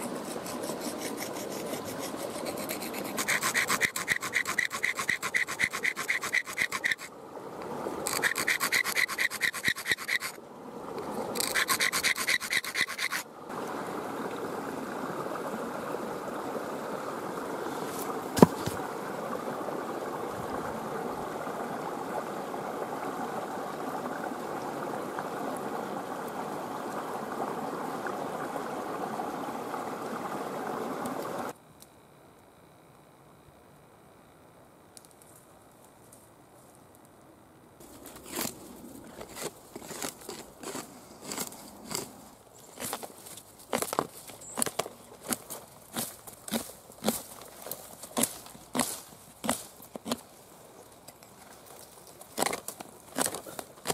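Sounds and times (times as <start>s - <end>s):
shell rasping on wet stone: 0.0s - 7.1s, 8.1s - 10.4s, 11.4s - 13.2s, 38.1s - 42.2s
running creek water: 0.0s - 31.6s, 37.8s - 53.9s.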